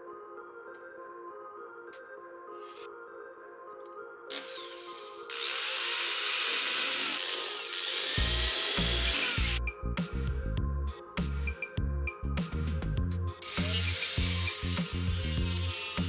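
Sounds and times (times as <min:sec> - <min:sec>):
background music: 0:00.0 - 0:16.0
power drill running: 0:04.3 - 0:09.6, 0:13.4 - 0:16.0.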